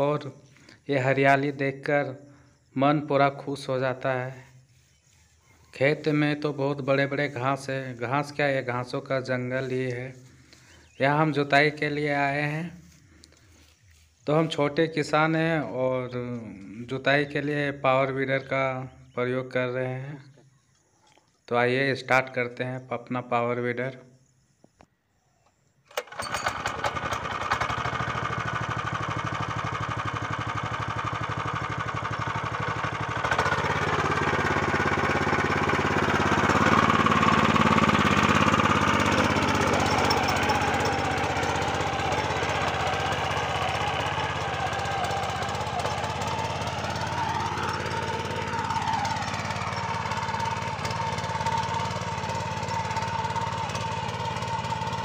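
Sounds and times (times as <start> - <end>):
power weeder engine running: 3.2 - 13.8, 25.9 - 55.0.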